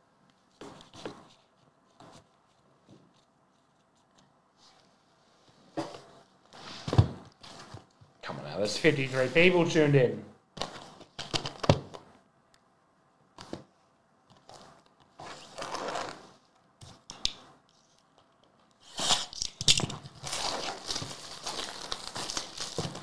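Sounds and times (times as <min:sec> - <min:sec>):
plastic shrink wrap crinkling: 0:18.8 - 0:23.0
boxes tapping and rustling: 0:19.7 - 0:23.0.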